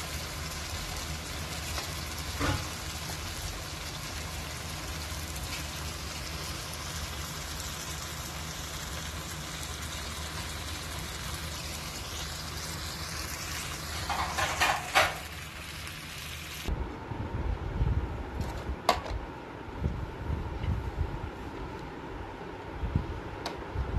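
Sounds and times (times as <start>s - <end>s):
curry sizzling in pan: 0.0s - 16.7s
low hum: 16.7s - 23.9s.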